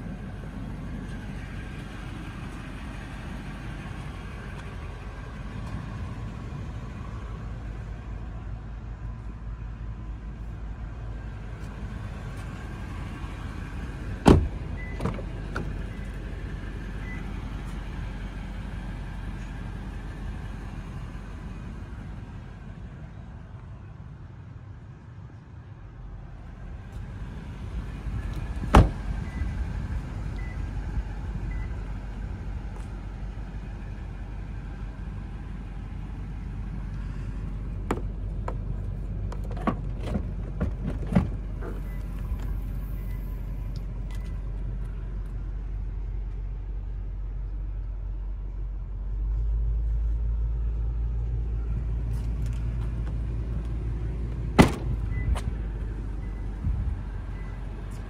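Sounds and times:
car door thump: 0:14.2 - 0:15.7, 0:28.6 - 0:29.0, 0:37.9 - 0:38.1, 0:54.6 - 0:55.4.

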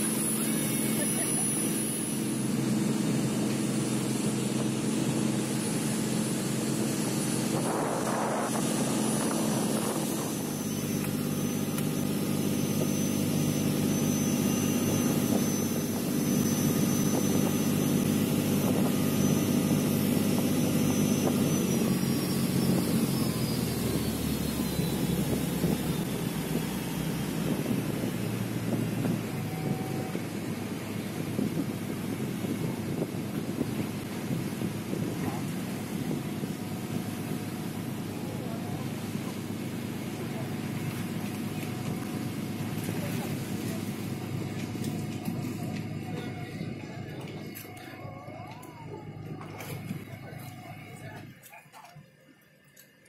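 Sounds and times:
wind and water rushing: 0:00.0 - 0:38.1
speedboat engine drone: 0:00.0 - 0:53.0.

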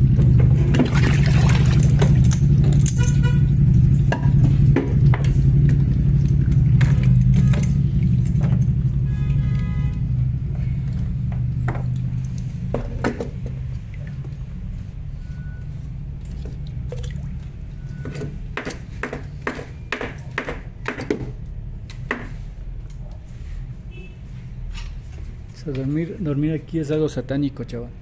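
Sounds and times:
water trickling and dripping: 0:13.4 - 0:14.4, 0:16.2 - 0:17.9.

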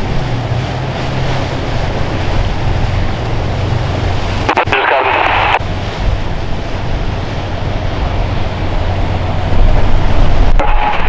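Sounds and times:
boat engines running: 0:00.0 - 0:11.0
surf: 0:00.0 - 0:11.0
wind buffeting the microphone: 0:05.3 - 0:11.0.

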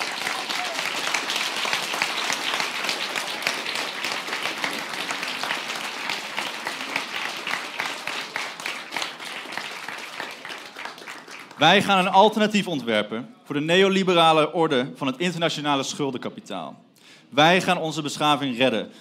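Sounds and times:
crowd clapping: 0:00.0 - 0:12.2.

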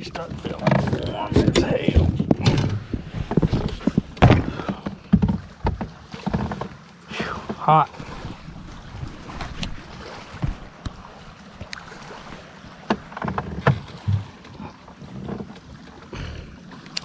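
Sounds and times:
wind on microphone: 0:00.0 - 0:04.7
water lapping against boat hull: 0:00.0 - 0:17.0
short knocks: 0:00.4 - 0:06.7
low thump: 0:00.6 - 0:05.8.

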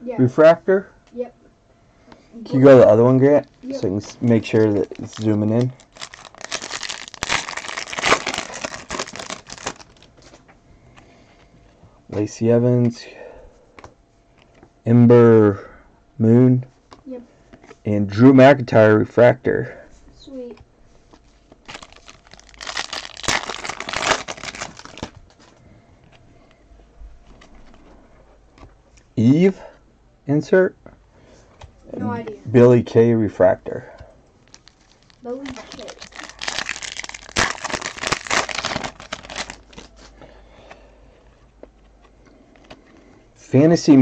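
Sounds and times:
card pack wrapper crinkling: 0:03.4 - 0:10.3, 0:21.6 - 0:25.5, 0:34.4 - 0:40.1.

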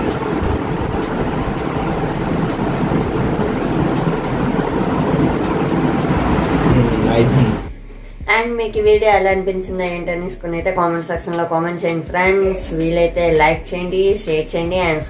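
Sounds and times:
loud steady rushing noise: 0:00.0 - 0:07.7.

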